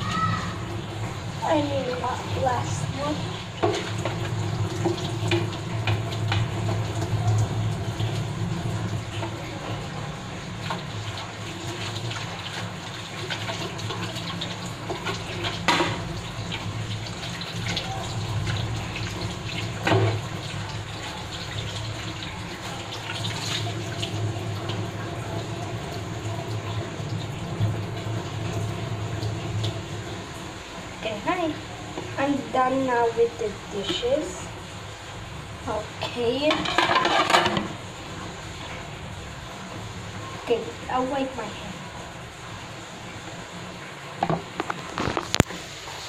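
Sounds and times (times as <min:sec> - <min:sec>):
dishes clinking: 0:36.5 - 0:37.8
tap running into sink: 0:44.2 - 0:45.6.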